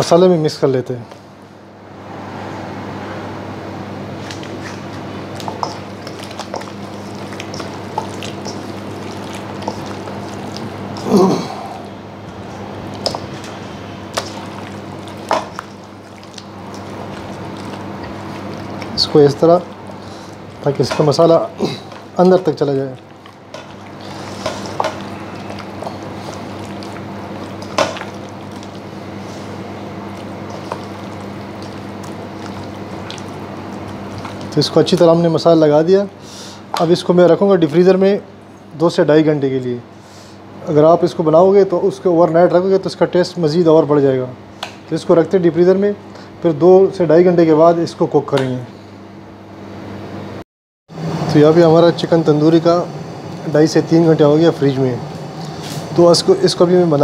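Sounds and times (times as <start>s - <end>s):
steady low hum: 0.0s - 50.4s, 51.0s - 57.0s
hands squishing wet meat: 4.2s - 35.6s.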